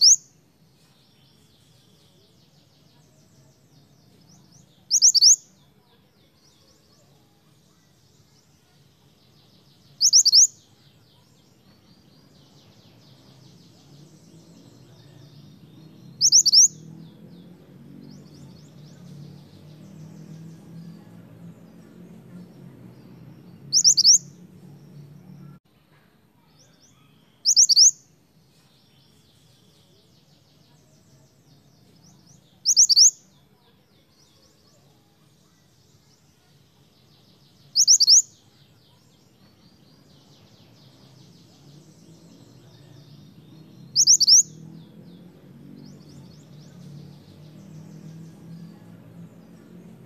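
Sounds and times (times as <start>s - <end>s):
bird whistled calls: 0.0s - 0.3s, 4.9s - 5.4s, 10.0s - 10.5s, 16.2s - 16.8s, 23.7s - 24.3s, 27.4s - 28.0s, 32.7s - 33.2s, 37.8s - 38.3s, 44.0s - 44.5s
soft bird twittering: 0.0s - 25.6s, 26.4s - 50.0s.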